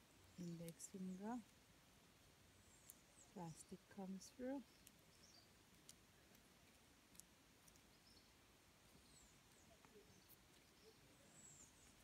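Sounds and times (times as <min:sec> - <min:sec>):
faint high bird chirps: 0:02.6 - 0:06.4, 0:07.8 - 0:12.0.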